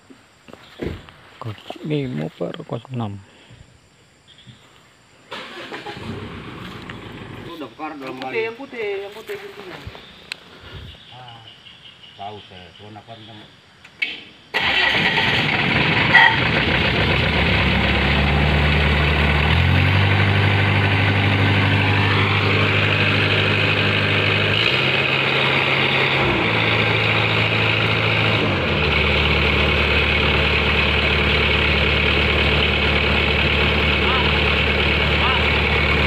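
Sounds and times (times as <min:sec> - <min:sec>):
diesel engine starting and revving: 0:05.3 - 0:07.7, 0:14.5 - 0:36.0.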